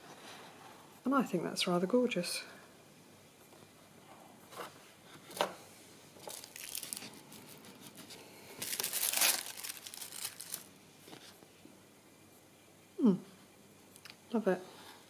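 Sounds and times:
metallic foil crinkling: 6.2 - 10.7.

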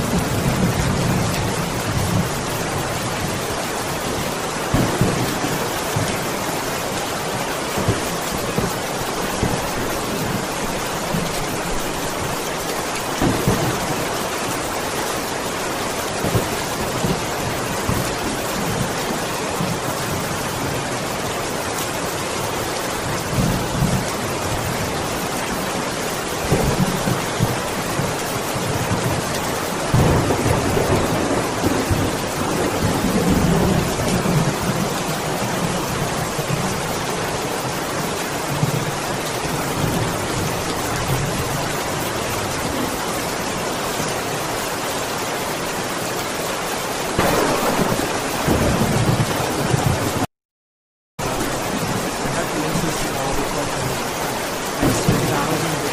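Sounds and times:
rolling thunder: 0.0 - 6.6, 13.2 - 14.8, 29.9 - 36.5, 47.1 - 50.3, 51.2 - 55.9
heavy rain hissing: 0.0 - 50.3, 51.2 - 55.9.

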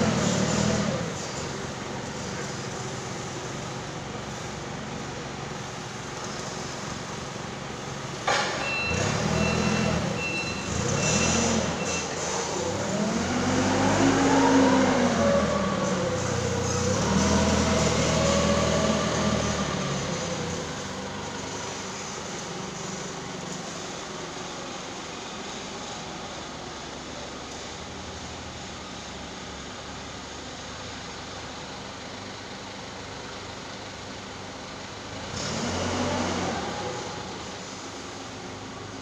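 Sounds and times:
forklift engine revving: 0.0 - 4.4, 7.5 - 26.4, 35.1 - 38.6
clunk: 8.2 - 8.9
high reversing beeps: 8.6 - 12.2.

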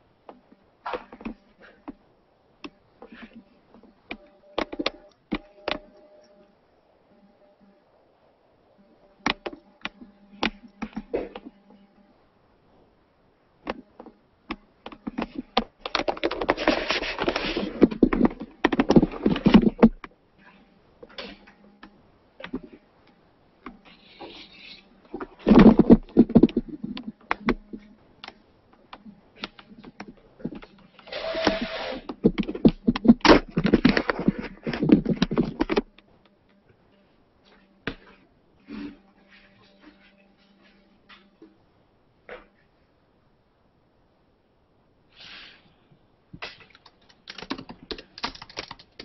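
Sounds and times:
microphone handling rustling: 13.6 - 36.2.

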